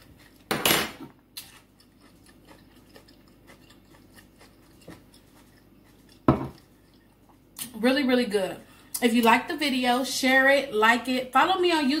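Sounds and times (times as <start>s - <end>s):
faint chewing: 0.0s - 0.5s, 1.3s - 7.7s.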